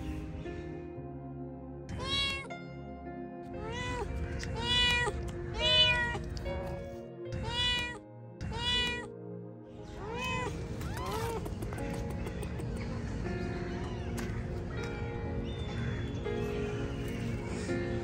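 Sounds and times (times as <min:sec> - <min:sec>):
background music: 0:00.0 - 0:18.0
cat meowing loudly: 0:01.9 - 0:02.5, 0:03.6 - 0:06.4, 0:07.4 - 0:09.1, 0:09.9 - 0:11.5.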